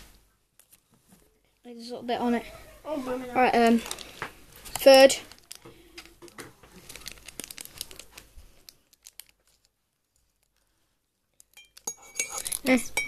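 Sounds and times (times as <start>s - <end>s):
plastic sachet crinkling and tearing: 3.7s - 10.6s.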